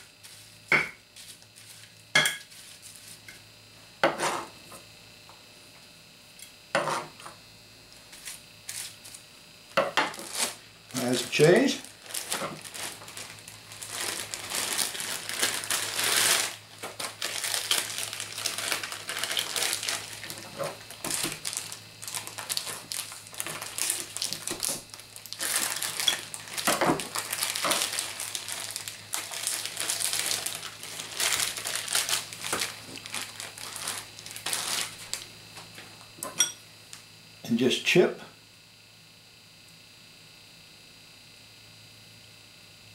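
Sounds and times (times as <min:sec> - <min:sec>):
plastic packaging crinkling: 0:10.1 - 0:35.3.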